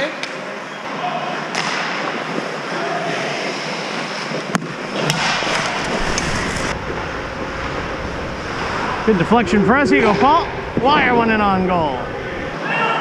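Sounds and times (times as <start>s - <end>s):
skates scraping on ice: 3.1s - 7.0s.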